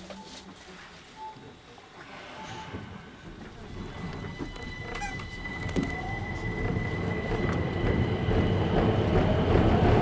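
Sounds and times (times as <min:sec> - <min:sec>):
train wheels rumbling: 0:02.8 - 0:10.0.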